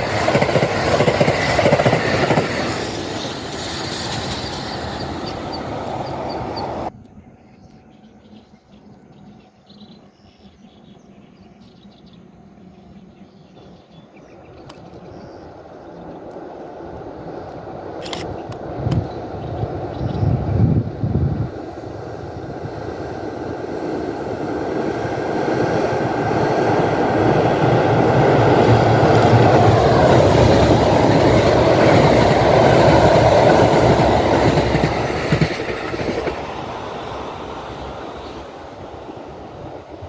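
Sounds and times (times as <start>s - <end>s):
train wheels rumbling on bridge: 0.0s - 6.9s, 14.7s - 38.0s.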